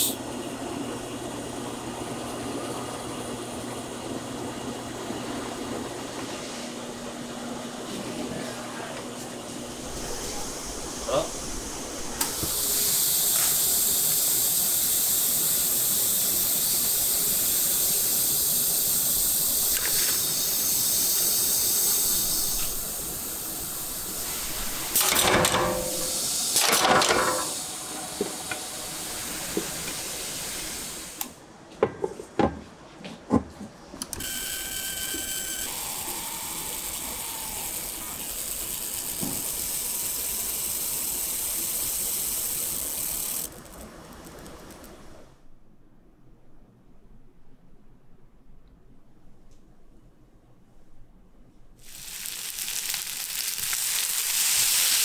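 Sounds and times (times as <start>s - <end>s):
steady machine hiss: 0.0s - 0.2s, 8.5s - 31.4s, 34.2s - 45.4s, 51.8s - 55.0s.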